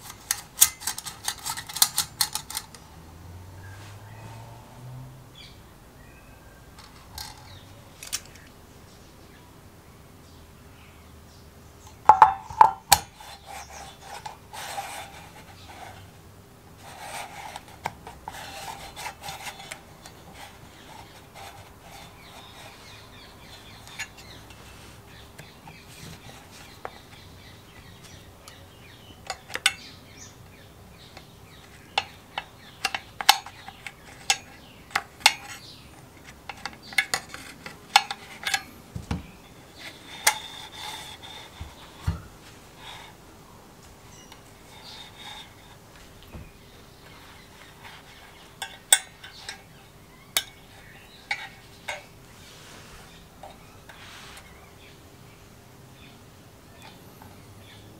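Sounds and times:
plastic pulley scraping in housing: 0.0 - 2.8, 16.8 - 27.3, 39.7 - 42.0, 44.7 - 45.8
sharp clicks and knocks: 11.9 - 13.2.

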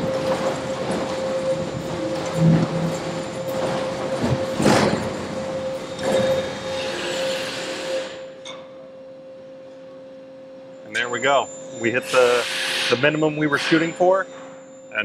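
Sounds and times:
low hum: 0.0 - 7.3
steady tone: 0.0 - 7.3, 8.1 - 15.0.

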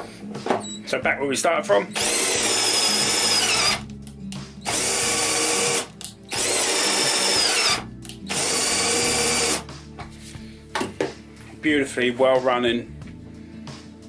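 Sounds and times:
cordless drill whining: 1.9 - 3.9, 4.6 - 9.7.

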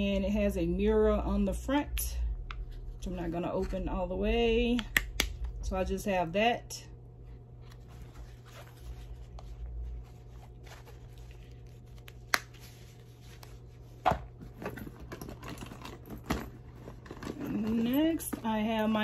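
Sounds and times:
soft rustling: 7.3 - 14.0
rummaging inside a handbag: 7.3 - 19.0.

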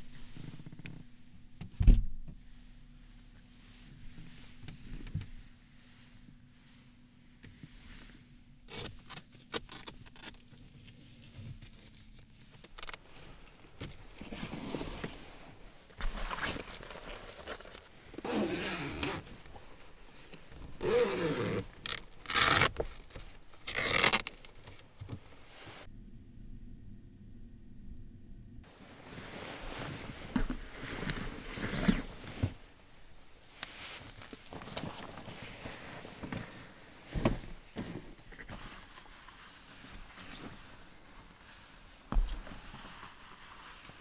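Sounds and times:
cloth rustling: 9.7 - 25.9, 28.7 - 44.0
zipper being pulled: 18.2 - 19.3, 20.8 - 22.7, 23.7 - 24.3, 29.1 - 32.6.

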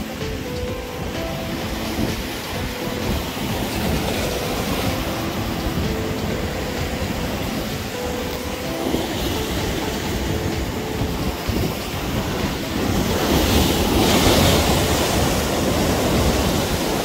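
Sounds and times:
sea surf washing against rocks: 0.0 - 17.0.

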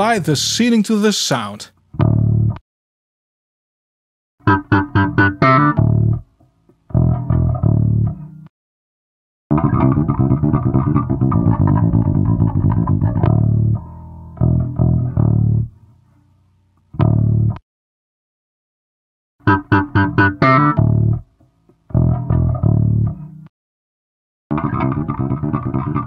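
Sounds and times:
plucked electric bass: 1.9 - 2.6, 4.4 - 8.5, 9.5 - 15.8, 16.9 - 17.6, 19.4 - 23.5, 24.5 - 26.0.

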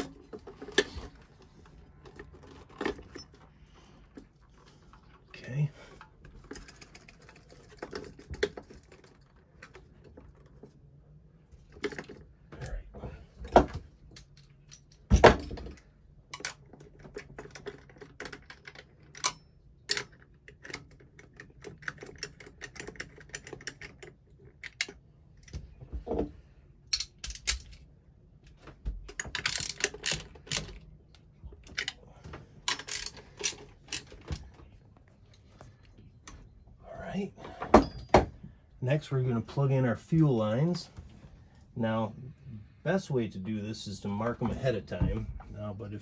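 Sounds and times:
clicks of tools and engine parts: 13.4 - 26.3, 26.9 - 36.6.

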